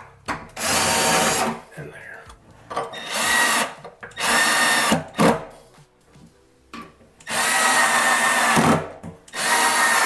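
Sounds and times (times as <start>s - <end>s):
cordless drill running: 0.6s - 1.5s, 3.0s - 5.0s, 7.3s - 10.0s.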